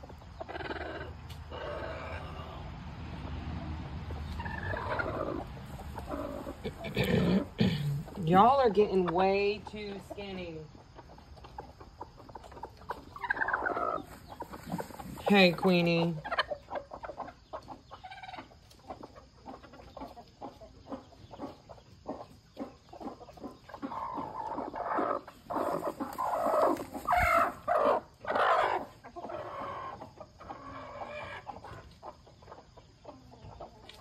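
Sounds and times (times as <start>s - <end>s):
hen clucking and squawking: 0.0s - 34.0s
rustling of wood shavings: 14.0s - 15.8s, 25.5s - 27.6s.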